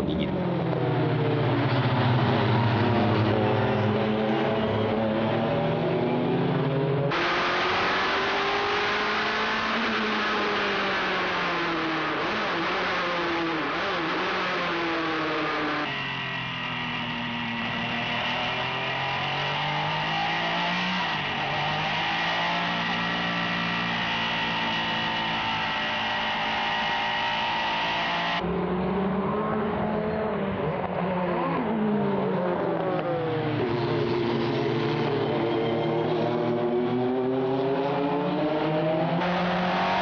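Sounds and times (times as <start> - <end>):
race car engine at speed: 0.0 - 40.0
race cars driving past: 0.1 - 40.0.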